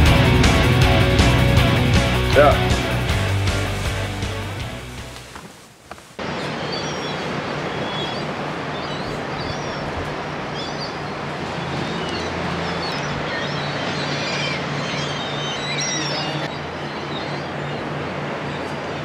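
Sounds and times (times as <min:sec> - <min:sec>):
rushing background noise: 0:00.0 - 0:19.0
birds chirping: 0:02.2 - 0:19.0.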